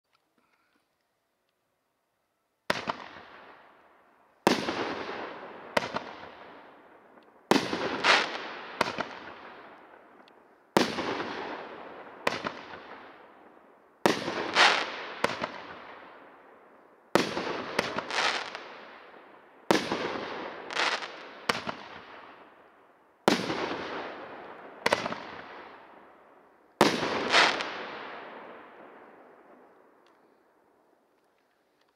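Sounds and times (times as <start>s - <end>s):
fireworks bangs: 2.7s - 3.7s, 4.4s - 16.4s, 17.1s - 22.5s, 23.2s - 26.2s, 26.8s - 30.0s.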